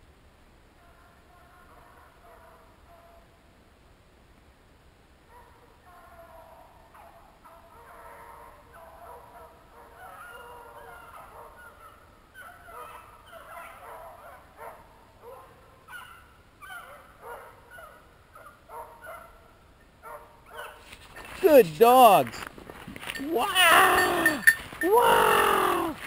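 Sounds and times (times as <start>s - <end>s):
beagles baying: 6.0s - 26.0s.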